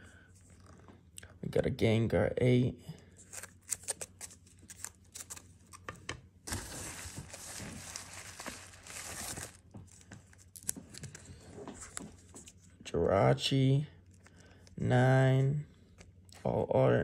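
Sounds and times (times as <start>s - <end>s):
packaging rustling and crinkling: 3.2s - 12.7s.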